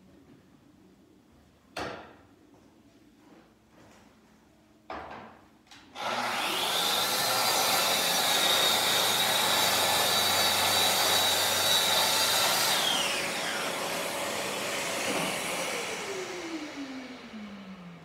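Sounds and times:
dust extractor humming: 6.0s - 18.0s
track saw whining: 6.0s - 18.0s.

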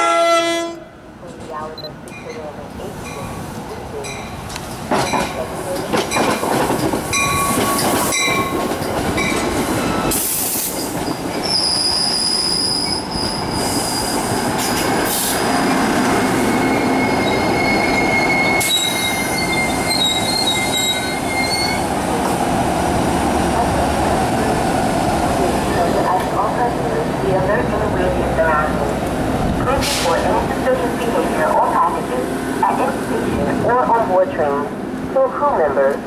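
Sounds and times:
train wheels rumbling on rail: 1.2s - 36.0s
wheels squealing: 9.2s - 14.4s, 15.4s - 21.9s.

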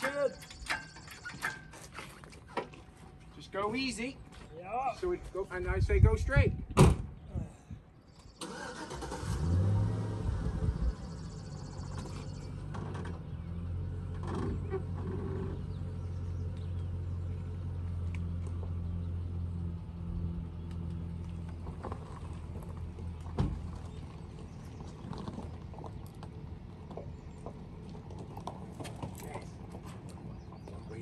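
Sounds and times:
truck engine idling: 10.8s - 31.0s.

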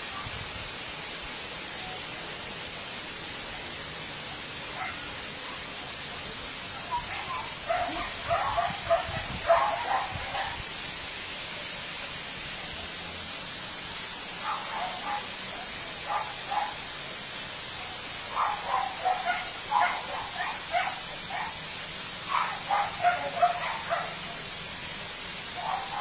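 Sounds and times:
steady hiss: 0.0s - 26.0s
dog barking: 4.8s - 5.1s, 6.9s - 10.6s, 14.4s - 15.3s, 16.0s - 16.8s, 18.3s - 21.6s, 22.3s - 24.3s, 25.6s - 26.0s.

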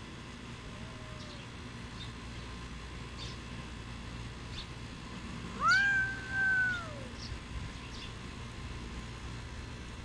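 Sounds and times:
cat meowing: 0.7s - 1.5s, 5.6s - 7.2s.

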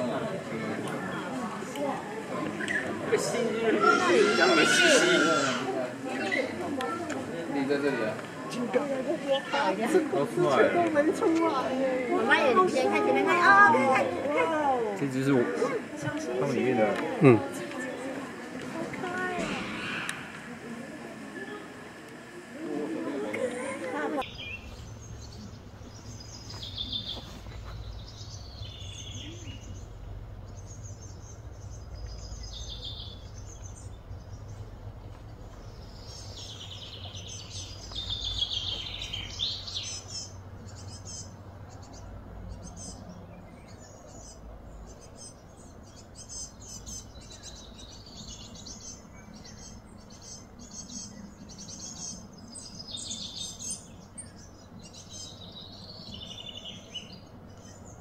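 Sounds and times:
birds chirping and calling: 2.4s - 14.1s, 15.0s - 20.6s, 23.9s - 58.0s
low background rumble: 24.2s - 58.0s.

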